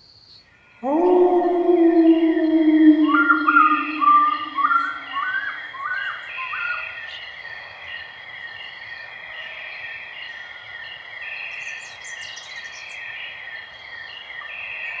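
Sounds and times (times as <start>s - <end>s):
constant high tone: 0.8s - 5.6s
insects chirping: 0.8s - 5.7s.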